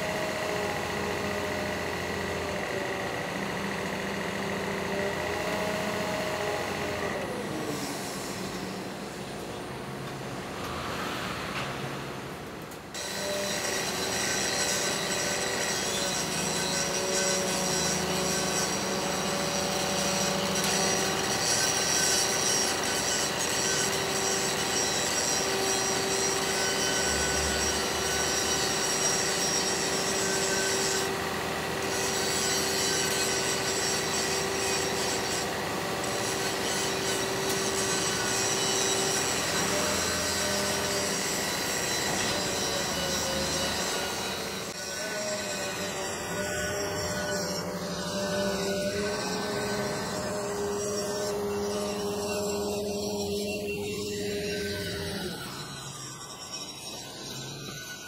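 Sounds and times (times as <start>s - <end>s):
crane machinery running: 0.0s - 58.0s
steady whining tones: 0.0s - 58.0s.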